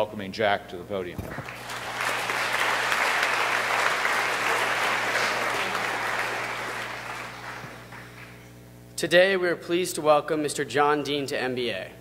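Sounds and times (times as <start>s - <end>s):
audience applauding: 1.2s - 8.4s.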